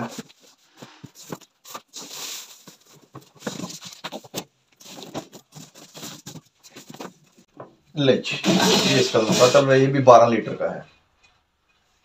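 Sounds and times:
plastic wrapping rustling: 0:00.0 - 0:07.5.

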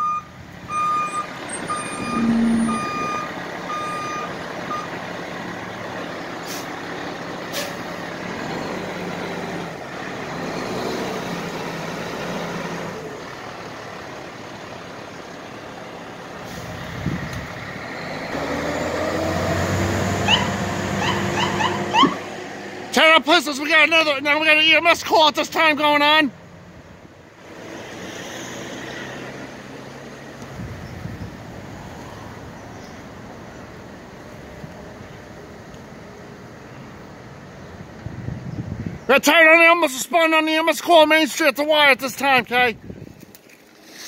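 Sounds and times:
truck backup alarm beeping: 0:00.0 - 0:05.0
diesel engine running: 0:00.0 - 0:23.0.

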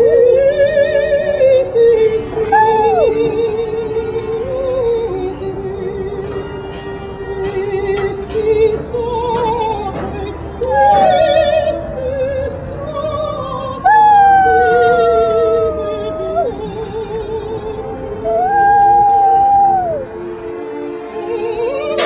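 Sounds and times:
operatic singing: 0:00.0 - 0:22.0
dog howling: 0:02.5 - 0:03.2, 0:10.6 - 0:11.4, 0:13.8 - 0:16.6, 0:18.2 - 0:20.1.

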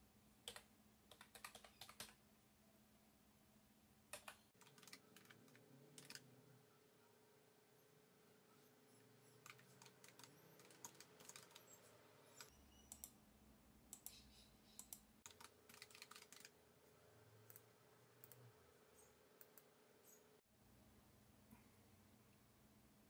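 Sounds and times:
keyboard typing: 0:00.4 - 0:02.2, 0:04.1 - 0:06.4, 0:08.9 - 0:13.2, 0:13.9 - 0:16.6, 0:17.4 - 0:20.2
faint steady hum: 0:02.2 - 0:23.0.

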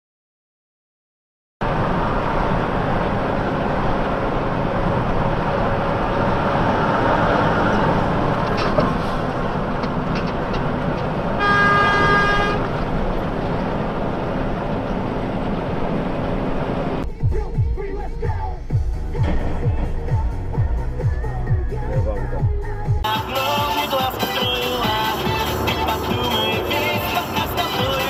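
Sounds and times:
truck road and engine noise: 0:01.6 - 0:28.0
truck horn blast: 0:11.4 - 0:12.8.

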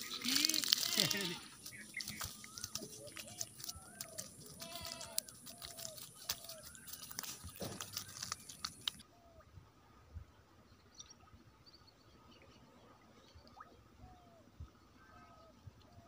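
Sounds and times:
fish flopping on grass: 0:00.0 - 0:09.0.

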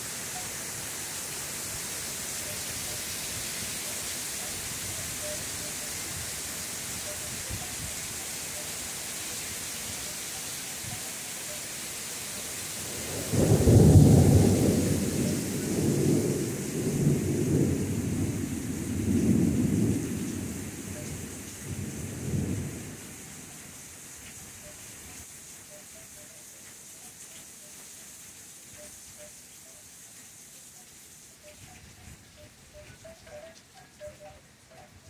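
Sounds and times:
heavy rain hissing: 0:00.0 - 0:35.0
thunder clap and rumble: 0:13.0 - 0:22.9.

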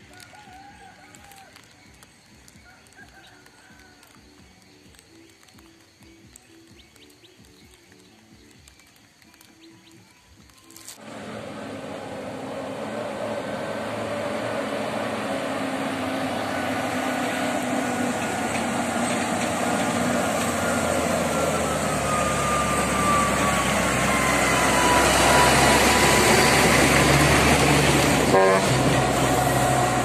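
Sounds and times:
diesel truck passing: 0:11.0 - 0:30.0
truck engine whine: 0:11.0 - 0:30.0.

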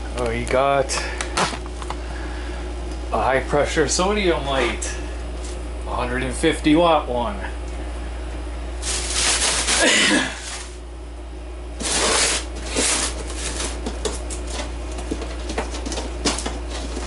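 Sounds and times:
steady low hum: 0:00.0 - 0:17.0
plastic bag rustling: 0:08.8 - 0:10.8, 0:11.8 - 0:17.0.

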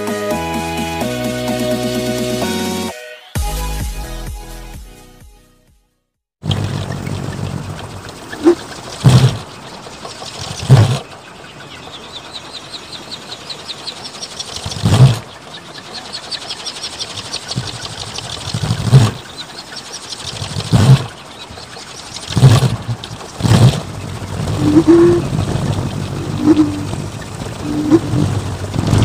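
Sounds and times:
fast light rattle: 0:06.4 - 0:29.0
propeller blade whooshes: 0:06.4 - 0:29.0
steady rushing wind: 0:06.5 - 0:29.0.

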